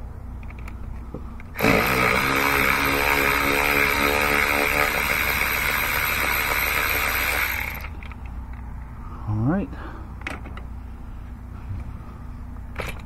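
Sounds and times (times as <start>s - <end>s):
electric ratchet motor whine: 1.6s - 8.0s.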